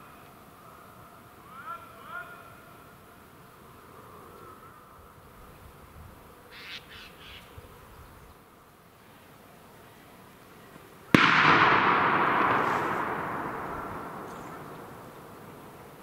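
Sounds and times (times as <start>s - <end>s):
loud gunshot echoing: 11.2s - 16.0s.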